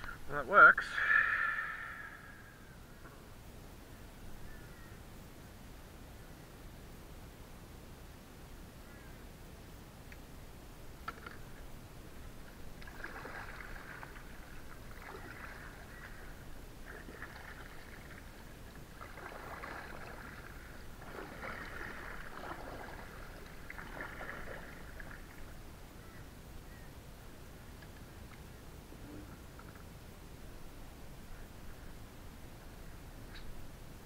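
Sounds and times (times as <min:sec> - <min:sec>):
paddle splashing in water: 0:12.5 - 0:25.6.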